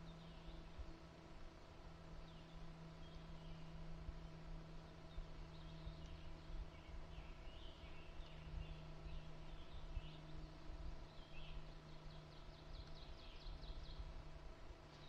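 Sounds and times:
songbirds chirping: 0:00.0 - 0:15.0.

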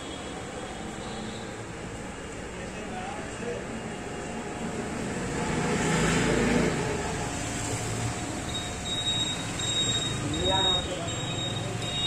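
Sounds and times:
street traffic noise: 0:00.0 - 0:12.0
vehicle passing: 0:04.8 - 0:08.5.

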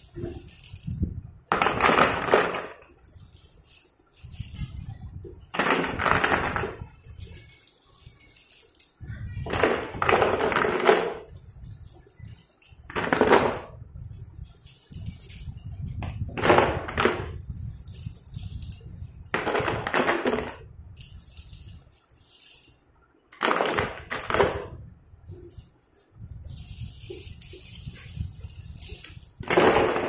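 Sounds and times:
pencils clattering into cardboard box: 0:00.0 - 0:30.0.

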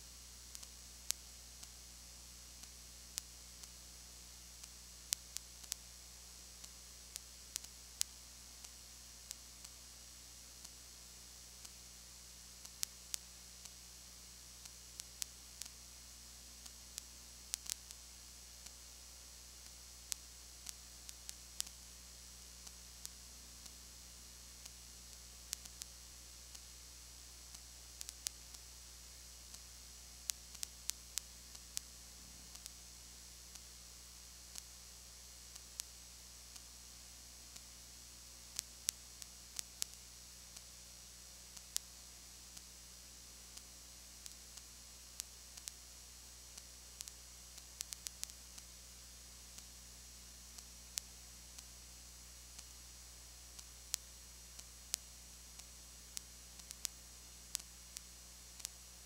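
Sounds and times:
low electrical hum: 0:00.0 - 0:59.0
tape hiss: 0:00.0 - 0:59.0
sharp clicks and pops: 0:00.5 - 0:01.8, 0:04.5 - 0:09.8, 0:16.6 - 0:19.0, 0:19.6 - 0:37.8, 0:38.4 - 0:49.9, 0:53.5 - 0:59.0.

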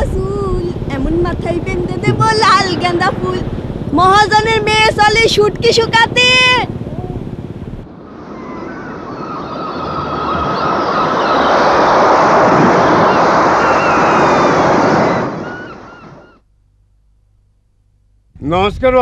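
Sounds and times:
waves rushing: 0:00.7 - 0:16.4
faint high whistling calls: 0:08.3 - 0:16.5.

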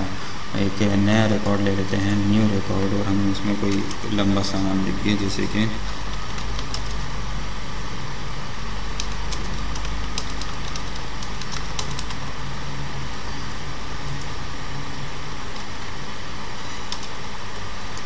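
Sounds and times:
low hum and hiss: 0:00.0 - 0:18.0
computer keyboard clicking: 0:03.7 - 0:04.1, 0:06.0 - 0:07.0, 0:08.9 - 0:12.2, 0:16.9 - 0:17.2.

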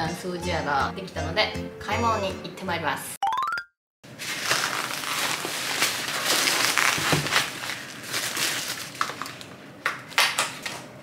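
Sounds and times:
plastic grocery bags crinkling: 0:04.1 - 0:10.9.

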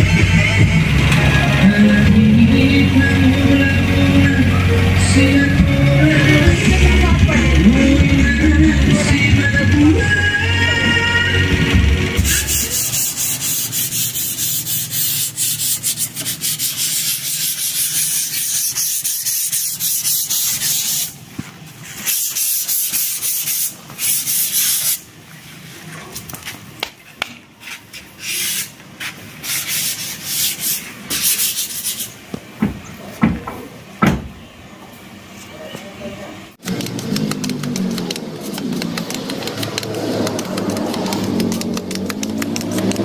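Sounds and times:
harsh hissing scraping: 0:12.0 - 0:25.8, 0:27.6 - 0:32.2.

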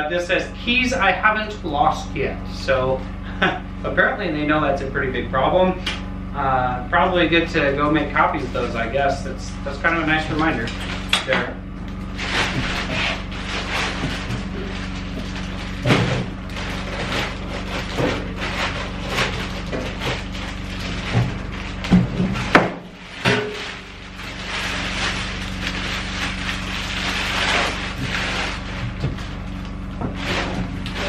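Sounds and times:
plastic bag crinkling: 0:11.8 - 0:31.0.

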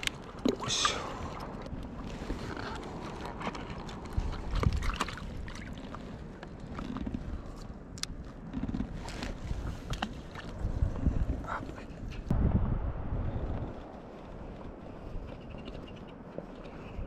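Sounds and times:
wind on microphone: 0:00.0 - 0:07.6, 0:08.5 - 0:17.0
water lapping around board: 0:00.0 - 0:12.3.

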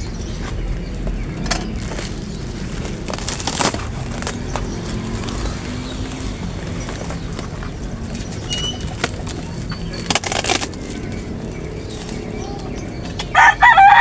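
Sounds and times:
cardboard packaging tearing: 0:01.8 - 0:07.0, 0:10.0 - 0:10.9.

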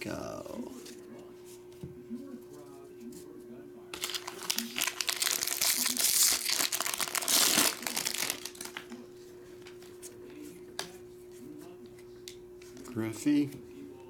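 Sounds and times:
foil wrapper crinkling: 0:04.0 - 0:09.0.

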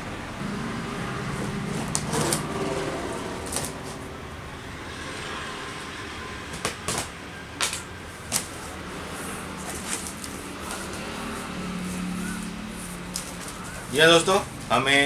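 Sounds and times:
low steady hum: 0:00.0 - 0:06.4
cardboard crackling and knocking: 0:06.5 - 0:08.6
cardboard rustling: 0:06.5 - 0:13.9.

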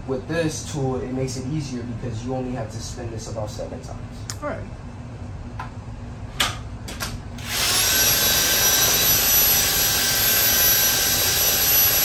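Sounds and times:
cordless drill running: 0:07.4 - 0:12.0.

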